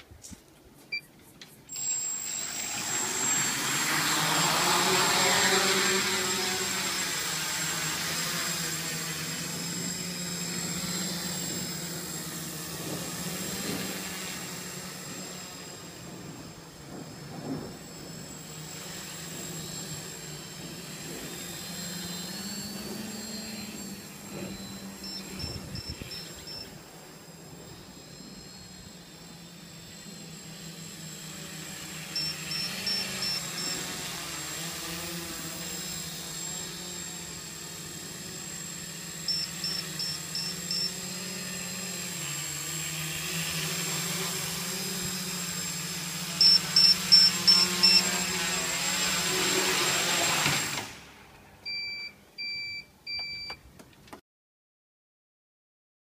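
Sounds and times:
quadcopter motors buzzing: 0.1s - 53.4s
high electronic beeps: 24.6s - 26.8s, 46.4s - 48.1s.

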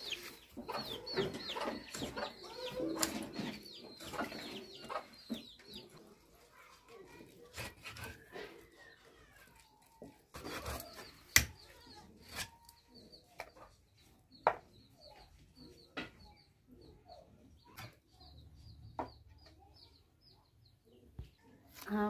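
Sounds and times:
birds chirping: 0.0s - 6.4s.

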